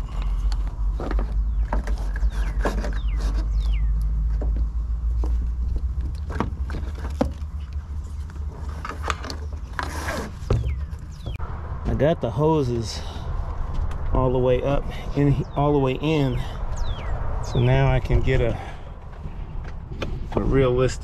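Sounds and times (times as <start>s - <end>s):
cables scraping and rubbing: 0.0s - 4.4s, 5.4s - 11.4s
steady low rumble: 0.0s - 21.0s.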